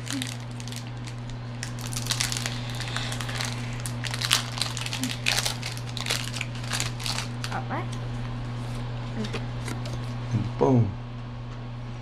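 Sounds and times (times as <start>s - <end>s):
foil wrapper crinkling: 0.0s - 7.6s
steady low hum: 0.0s - 12.0s.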